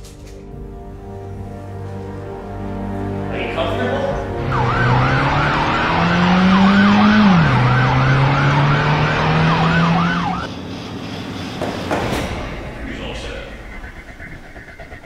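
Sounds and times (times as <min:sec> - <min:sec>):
road noise: 0:00.6 - 0:15.0
car engine: 0:01.9 - 0:15.0
police siren wailing: 0:02.7 - 0:10.5.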